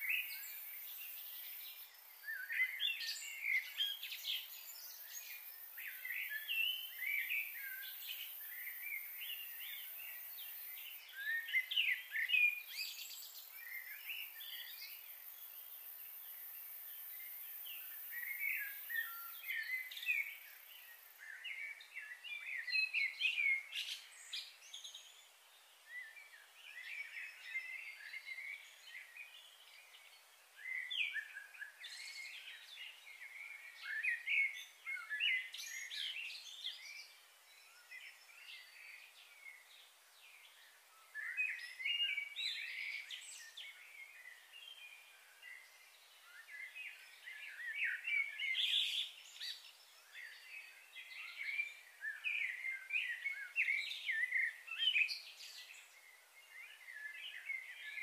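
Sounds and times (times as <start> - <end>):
high-pitched hiss: 0.0 - 21.6.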